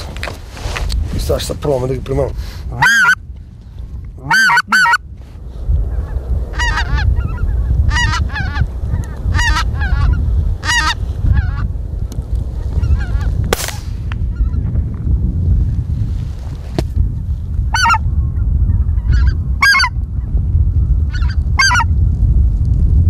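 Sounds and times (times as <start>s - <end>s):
low rumble: 0.0s - 23.0s
geese honking overhead: 2.7s - 3.2s, 4.2s - 5.1s, 5.8s - 11.7s, 12.6s - 13.4s, 17.7s - 18.1s, 18.7s - 20.0s, 21.1s - 21.9s
goose call honks: 2.7s - 3.2s, 4.2s - 5.0s, 19.2s - 19.9s, 21.1s - 21.9s.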